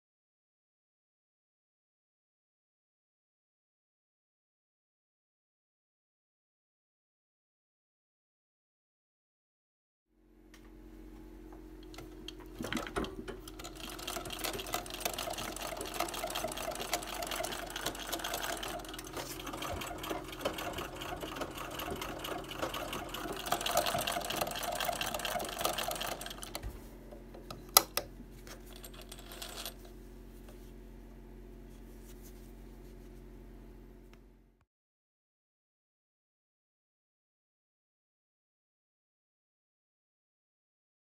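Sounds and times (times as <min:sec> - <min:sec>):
treadle sewing machine stitching: 0:12.5 - 0:26.7, 0:28.6 - 0:29.9.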